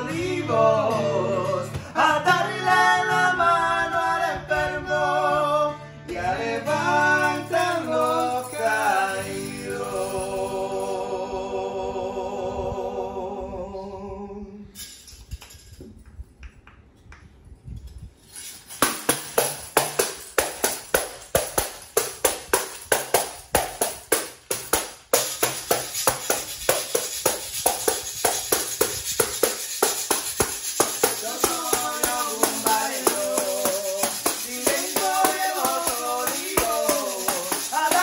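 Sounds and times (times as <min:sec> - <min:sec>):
acoustic guitar: 0:00.0 - 0:12.4, 0:18.4 - 0:38.0
person singing: 0:00.0 - 0:14.8, 0:30.7 - 0:38.0
tambourine rhythm: 0:06.6 - 0:11.1, 0:18.2 - 0:38.0
scattered taps: 0:19.1 - 0:38.0
high scraping hiss: 0:24.3 - 0:38.0.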